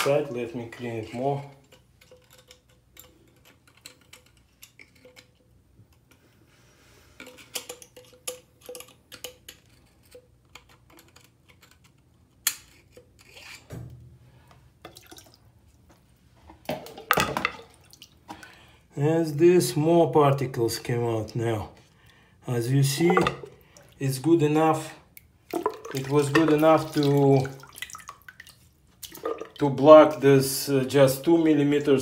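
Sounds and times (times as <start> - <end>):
part splashing into water: 25.5 - 29.6.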